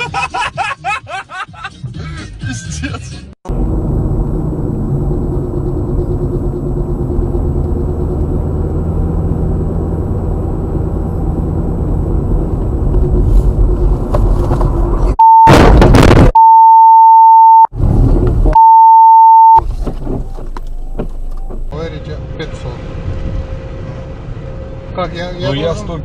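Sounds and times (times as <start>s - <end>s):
car engine and tyre rumble: 2.9s - 15.2s, 17.7s - 18.9s, 19.6s - 26.0s
censor bleep tone: 15.2s - 15.6s, 16.4s - 17.7s, 18.5s - 19.6s.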